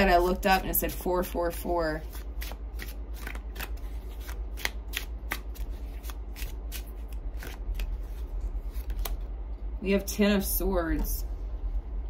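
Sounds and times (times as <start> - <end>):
cards shuffling: 2.0 - 9.3.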